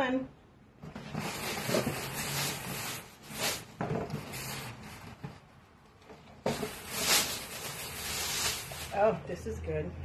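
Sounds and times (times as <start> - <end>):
clothes rustling: 6.1 - 9.1.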